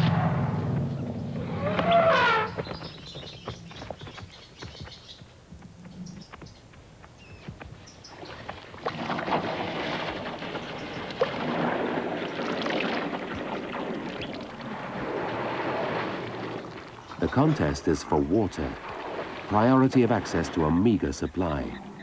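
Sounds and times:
water sloshing and splashing: 0:08.1 - 0:21.4.

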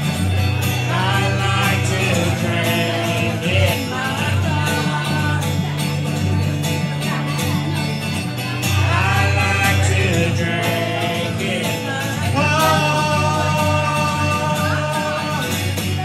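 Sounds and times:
acoustic guitar strummed: 0:00.0 - 0:16.0
man and woman singing: 0:00.7 - 0:06.2, 0:08.7 - 0:16.0.

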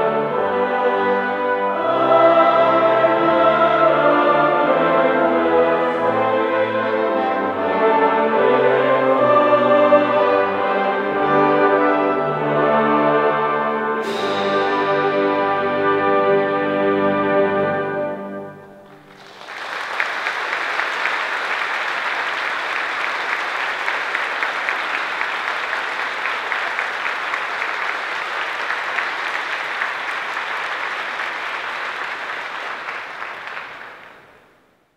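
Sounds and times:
brass chord: 0:00.0 - 0:19.1
audience applause: 0:18.8 - 0:34.5.

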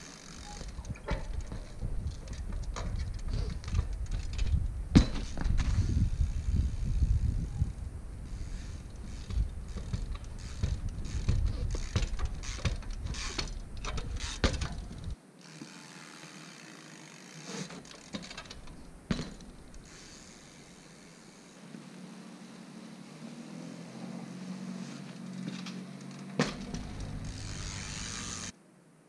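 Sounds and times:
sharp bike impact: 0:00.0 - 0:07.2, 0:08.2 - 0:20.8, 0:24.8 - 0:28.5
bicycle freewheel ratchet clicking: 0:00.0 - 0:21.6, 0:25.2 - 0:28.5
bike tyre and frame knocks: 0:00.4 - 0:05.8, 0:09.0 - 0:15.2, 0:17.6 - 0:19.8, 0:25.4 - 0:27.8.

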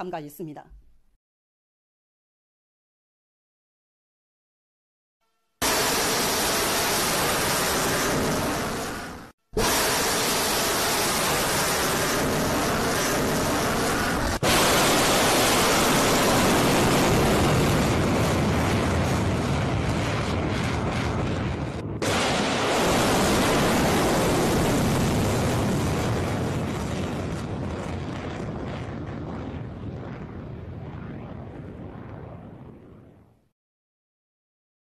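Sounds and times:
rocket motor roaring: 0:05.6 - 0:32.9.

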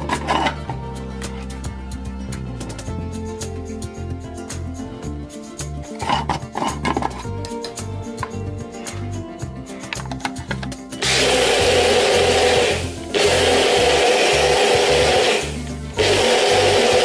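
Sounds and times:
background music with bass: 0:00.0 - 0:17.0
blender motor whirring: 0:11.0 - 0:17.0.

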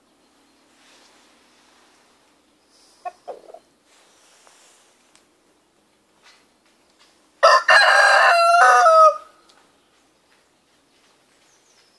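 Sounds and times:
rooster crowing: 0:07.4 - 0:09.4.

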